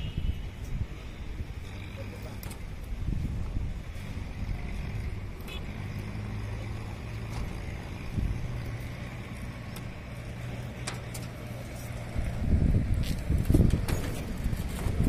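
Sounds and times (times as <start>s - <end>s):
wind rumble on microphone: 0.0s - 5.5s, 6.8s - 15.0s.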